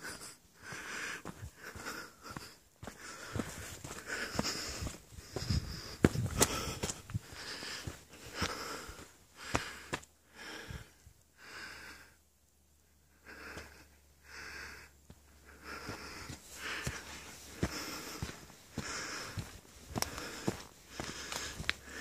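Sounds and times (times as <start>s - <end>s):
person breathing hard: 0.0s - 12.2s, 13.1s - 22.0s
footsteps on dirt trail: 0.1s - 10.1s, 15.1s - 22.0s.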